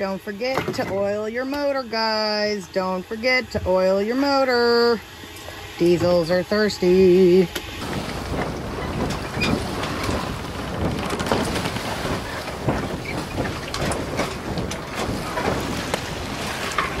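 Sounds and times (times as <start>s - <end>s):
wind and water rushing: 0.0s - 17.0s
small crackles: 8.4s - 17.0s.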